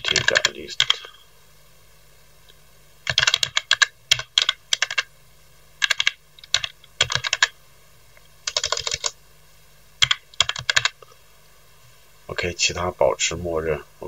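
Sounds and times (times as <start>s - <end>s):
computer keyboard typing: 0.0s - 1.1s, 3.0s - 5.1s, 5.8s - 7.6s, 8.4s - 9.2s, 10.0s - 11.0s.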